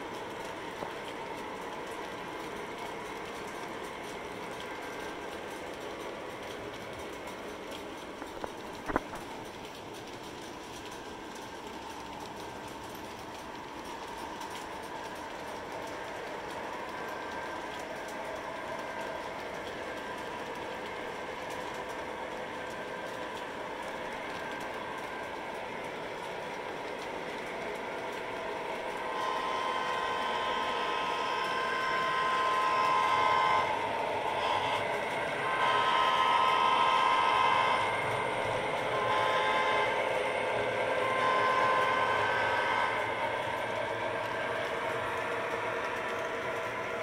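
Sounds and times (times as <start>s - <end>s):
model train running hum: 0.0s - 47.0s
locomotive horn blasts: 29.1s - 43.2s.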